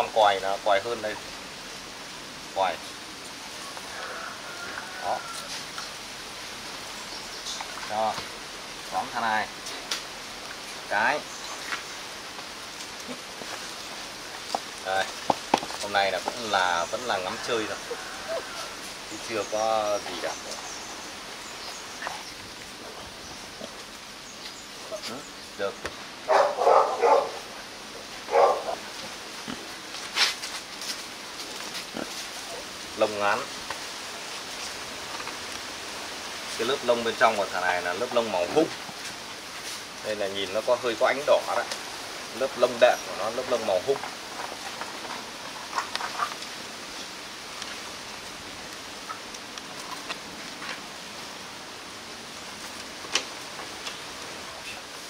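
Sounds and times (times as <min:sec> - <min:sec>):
background hiss: 0:00.0 - 0:55.0
puppies moving on concrete: 0:03.3 - 0:06.0, 0:09.4 - 0:51.2
puppy barking: 0:26.3 - 0:27.5, 0:28.3 - 0:28.8.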